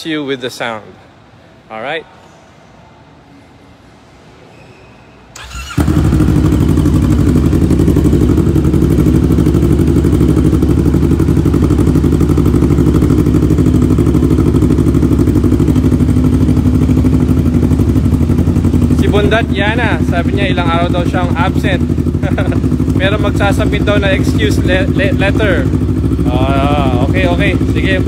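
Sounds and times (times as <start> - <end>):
engine starter cranking: 5.4 - 6.2
motorcycle engine idling: 5.4 - 28.0.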